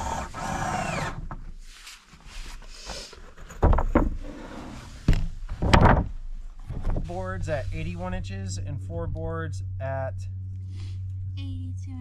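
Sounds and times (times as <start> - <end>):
rustling: 1.5 - 5.6.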